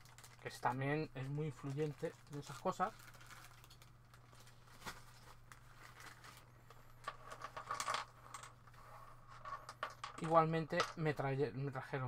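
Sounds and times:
plastic bag crinkling: 0.0 - 7.5
low steady hum: 0.0 - 12.0.

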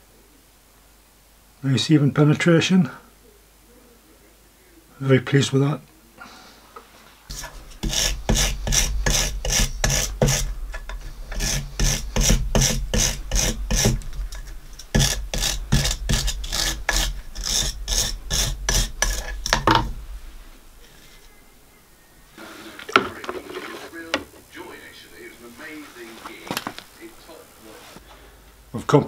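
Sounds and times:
wire brush scrubbing metal: 7.3 - 21.3.

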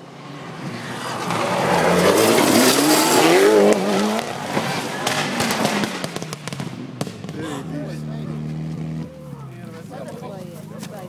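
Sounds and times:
car engine revving hard: 0.5 - 9.2.

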